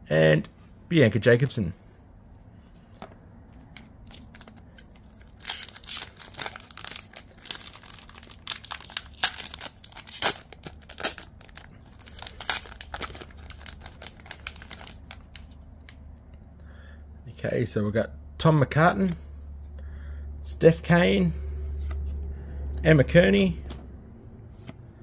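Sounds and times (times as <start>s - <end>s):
foil wrapper crinkling and tearing: 4.0s - 16.0s.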